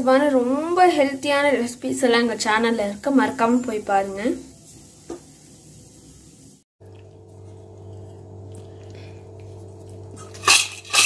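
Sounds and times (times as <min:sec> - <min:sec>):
low steady hum: 0:06.8 - 0:11.0
spoon clinking on steel plate: 0:10.3 - 0:11.0.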